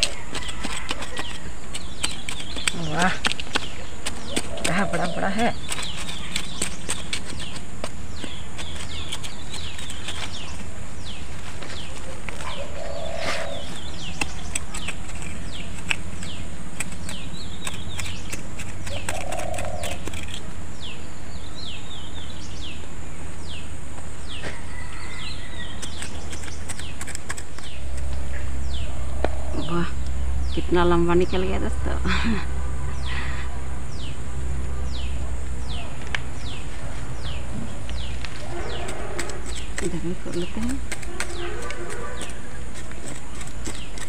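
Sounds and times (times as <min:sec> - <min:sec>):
small tool digging into soil: 0:00.0 - 0:20.6, 0:25.2 - 0:28.3, 0:37.2 - 0:44.0
birds chirping: 0:00.0 - 0:44.0
low rumble: 0:27.8 - 0:38.8.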